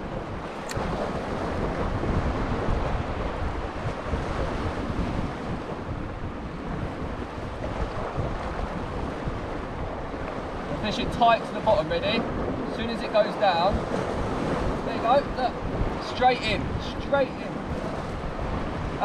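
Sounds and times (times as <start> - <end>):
wind buffeting microphone: 0.0 - 19.0
waves washing against rocks: 0.1 - 19.0.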